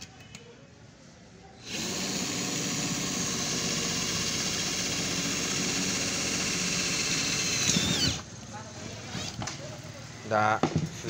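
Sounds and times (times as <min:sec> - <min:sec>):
electric drill driving screw into metal: 0:01.6 - 0:08.2.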